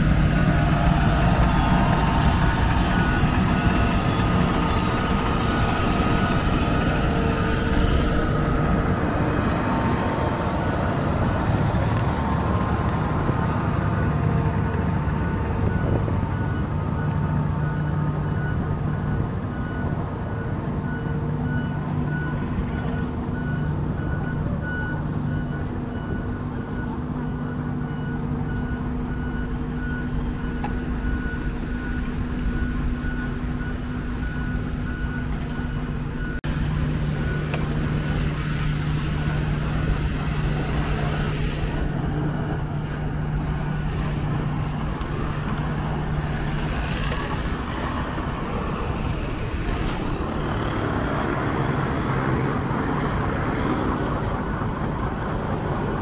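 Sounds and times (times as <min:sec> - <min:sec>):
diesel engines droning: 0:00.0 - 0:56.0
backup alarm beeping: 0:15.2 - 0:36.4.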